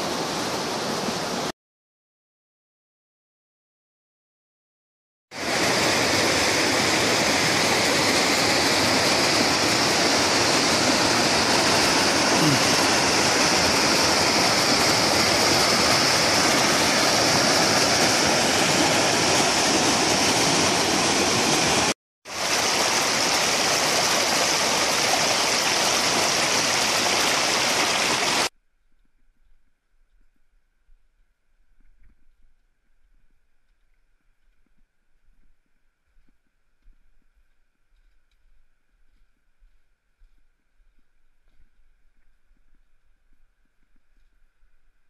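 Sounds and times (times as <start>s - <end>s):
river water rushing over boulders: 0.0s - 1.5s, 5.4s - 28.5s.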